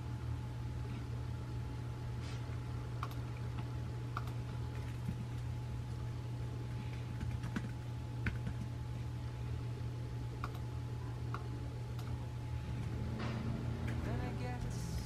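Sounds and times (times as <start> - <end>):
steady low hum: 0.0 - 15.0
laptop keyboard typing: 3.0 - 6.0, 6.7 - 8.8, 10.4 - 10.7.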